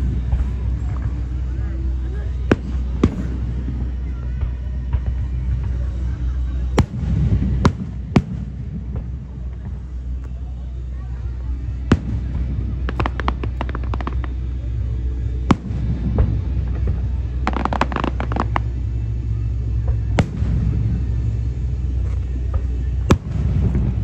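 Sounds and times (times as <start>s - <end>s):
rapid crackling of fireworks: 0.0s - 24.0s
steady low rumble: 0.0s - 24.0s
firework shells bursting: 17.5s - 18.8s.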